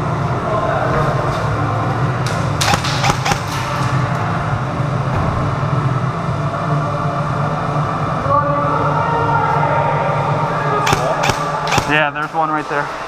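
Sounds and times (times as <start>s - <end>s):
steady low hum: 0.0s - 13.0s
airsoft gunfire snaps: 2.6s - 3.6s, 10.9s - 12.0s.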